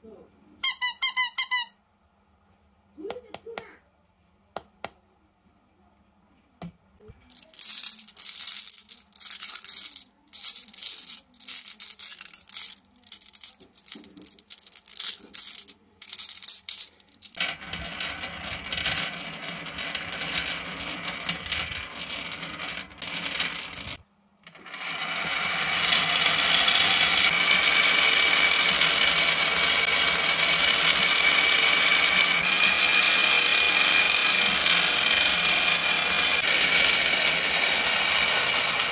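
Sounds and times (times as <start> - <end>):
marbles rolling on wooden tracks: 7.2 - 38.9.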